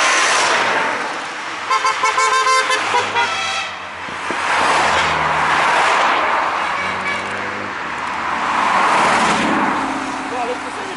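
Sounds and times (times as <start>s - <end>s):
cars driving past: 0.0s - 10.9s
car horn toot: 1.7s - 3.8s, 6.6s - 7.4s.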